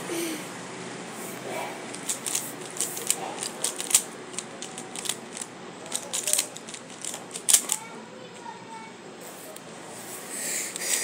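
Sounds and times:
puzzle cube clicking as turned: 1.9s - 7.8s.

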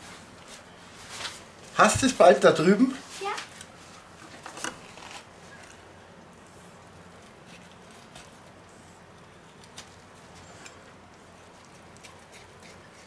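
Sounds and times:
knife carving meat on the bone: 7.1s - 13.0s.

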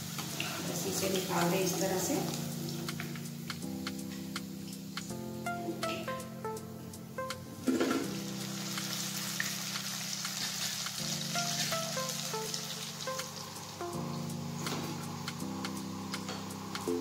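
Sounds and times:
food deep-frying in hot oil: 0.0s - 3.6s, 7.6s - 17.0s.

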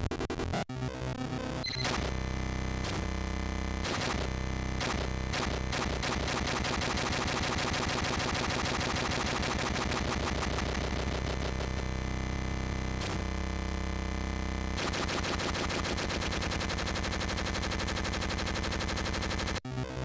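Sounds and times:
harsh repeating digital sound: 3.8s - 11.8s, 14.8s - 19.6s.

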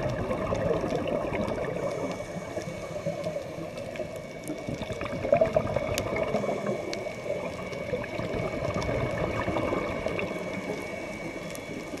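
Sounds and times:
faint high whine: 0.0s - 12.0s
underwater bubbling rush: 0.0s - 12.0s.

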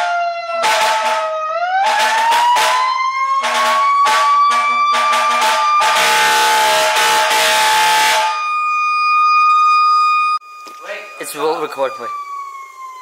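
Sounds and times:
fire truck siren wailing: 0.0s - 13.0s
loud horn blasts: 0.6s - 8.4s.

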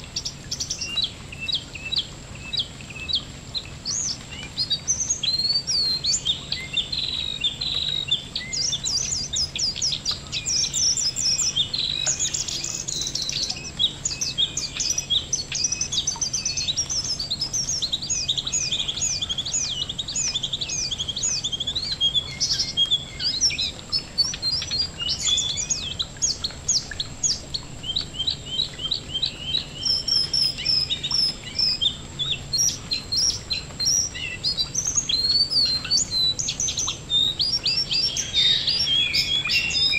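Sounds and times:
bird singing high chirps: 0.0s - 39.9s.

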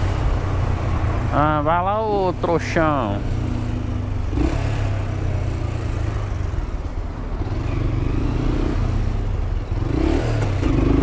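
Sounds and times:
traffic noise: 0.0s - 11.0s
motorcycle engine running: 3.0s - 11.0s.

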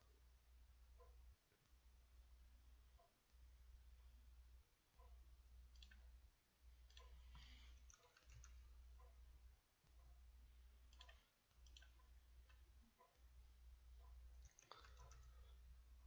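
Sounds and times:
computer mouse clicks: 5.7s - 6.1s, 6.8s - 8.6s, 10.9s - 13.2s, 14.4s - 15.4s.

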